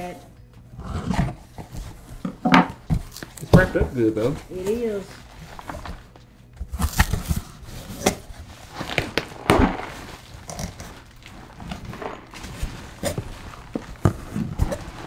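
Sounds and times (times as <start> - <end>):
plastic wrapping crinkling: 3.0 - 15.0.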